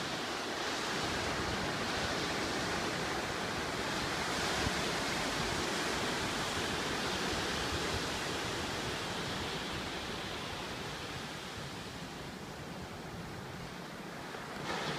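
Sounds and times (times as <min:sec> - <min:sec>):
ocean waves breaking: 0:00.0 - 0:14.9.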